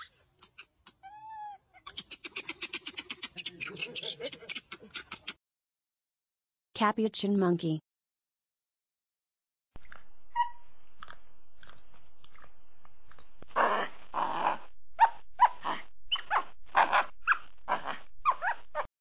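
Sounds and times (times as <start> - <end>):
monkey squeaks and chirps: 0.0 - 5.3, 9.8 - 12.5, 13.1 - 13.3, 16.1 - 16.4
harsh raspy monkey calls: 0.0 - 5.4, 13.1 - 18.9.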